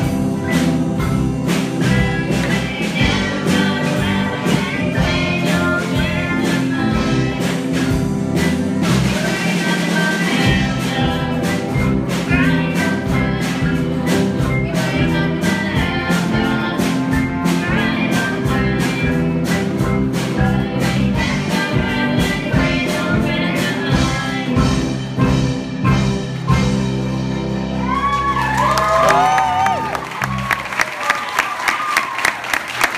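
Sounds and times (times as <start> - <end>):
guitar: 0.0 - 30.7
keyboard: 0.0 - 31.3
women singing together: 1.9 - 7.6.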